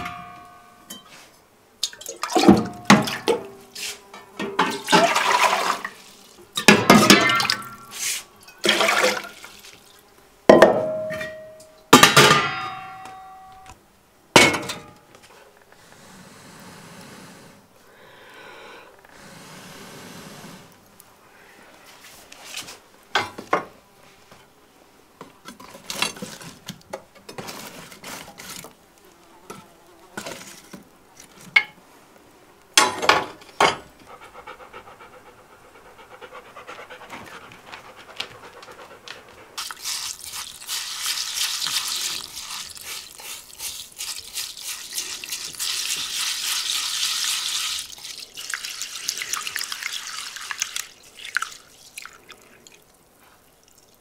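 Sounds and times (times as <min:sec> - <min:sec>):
stream of water: 0:01.8 - 0:03.6, 0:04.4 - 0:11.5, 0:39.6 - 0:54.0.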